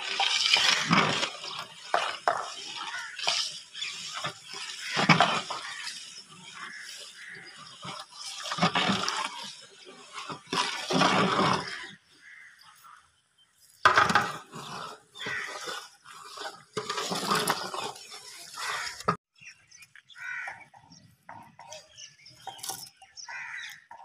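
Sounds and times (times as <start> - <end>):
liquid sloshing in a pot: 0.0 - 11.8.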